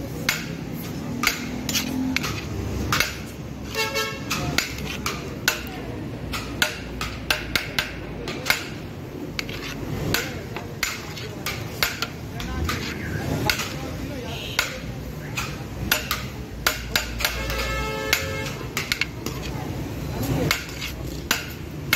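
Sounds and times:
street background noise: 0.0 - 21.9
metal spoon scraping metal pot: 1.3 - 5.7, 9.2 - 13.8, 16.8 - 21.6
vehicle horn toot: 3.7 - 4.3, 17.3 - 18.6.

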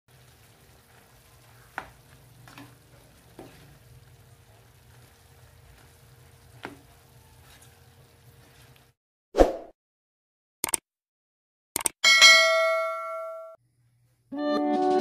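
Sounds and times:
food sizzling in a pan: 0.1 - 9.0.

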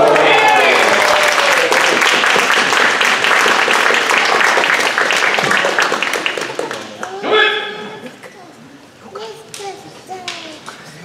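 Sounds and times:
spectators clapping: 0.0 - 7.2.

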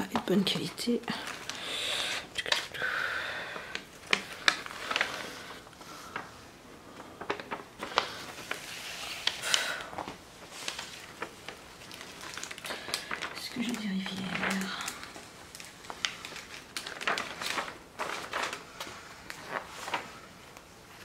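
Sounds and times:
plastic sheets rustling: 0.0 - 21.0
sharp plastic crackles: 0.0 - 21.0.

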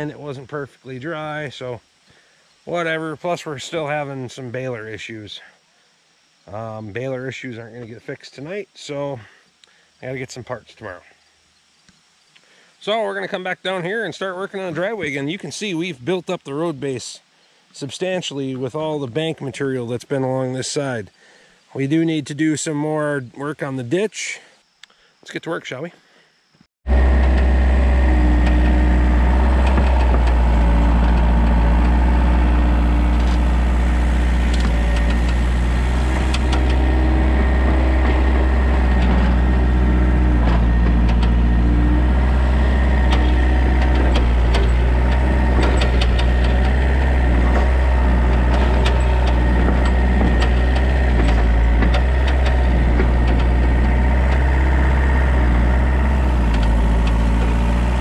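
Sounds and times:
excavator diesel engine running: 26.9 - 58.0
short knocks and clatter: 27.2 - 58.0.

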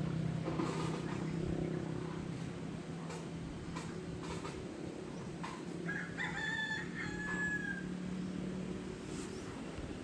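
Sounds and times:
rooster crowing: 5.8 - 8.0.

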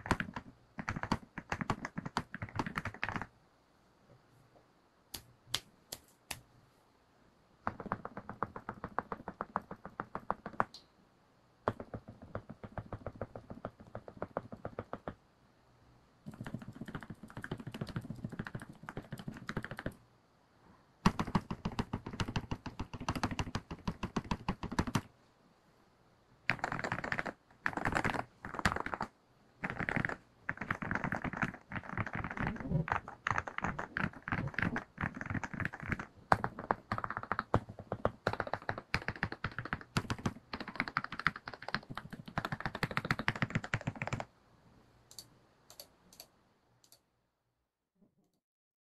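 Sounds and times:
fast typing on mechanical keyboard: 0.0 - 3.3, 7.7 - 10.7, 11.7 - 15.2, 16.3 - 20.0, 21.0 - 25.1, 26.5 - 44.3.

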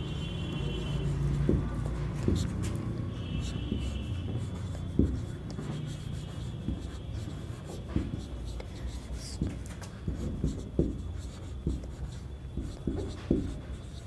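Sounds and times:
marker writing on whiteboard: 0.0 - 14.0
pen knocking on board: 1.2 - 8.4, 9.3 - 14.0.

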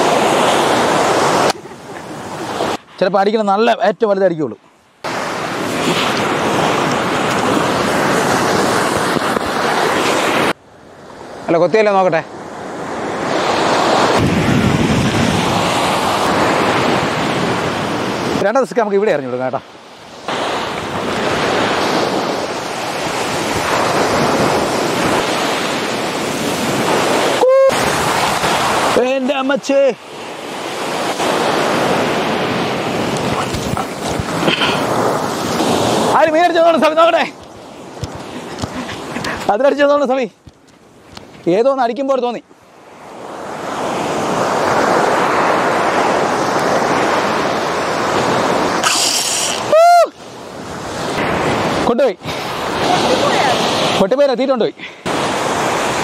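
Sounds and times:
wind on microphone: 0.0 - 3.0, 5.0 - 10.6, 13.0 - 18.4, 20.1 - 29.0, 30.2 - 36.2
surf washing onto beach: 0.0 - 4.2, 5.0 - 40.6, 41.2 - 56.0
short voice-like call: 27.4 - 27.8, 48.8 - 50.1
short high hiss: 48.8 - 49.7.

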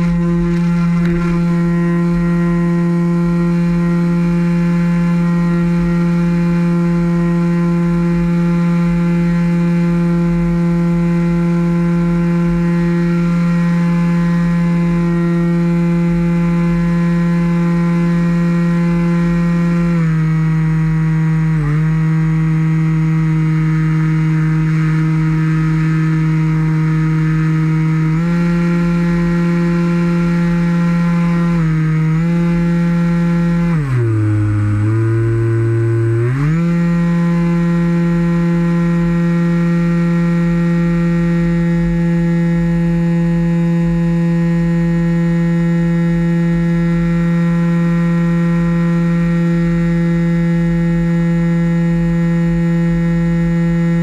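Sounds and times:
model plane motor buzzing: 0.0 - 54.0.

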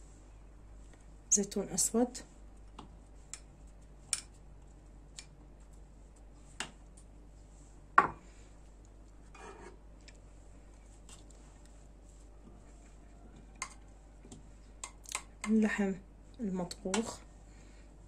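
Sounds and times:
soft rustle of food: 0.0 - 14.8
plastic spoon tapping bowls: 13.6 - 15.6.

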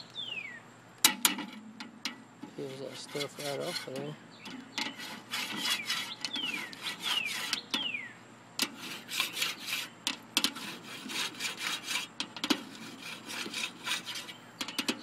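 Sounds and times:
tool scraping metal grill grates: 1.1 - 8.0, 8.6 - 15.0
high falling squeaks: 4.8 - 8.1.

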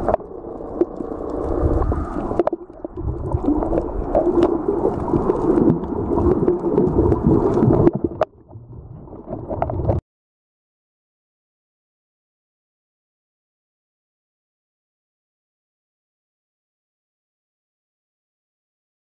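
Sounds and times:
sharp underwater clicks: 0.0 - 8.3
underwater rumbling water and bubbles: 0.0 - 10.0.

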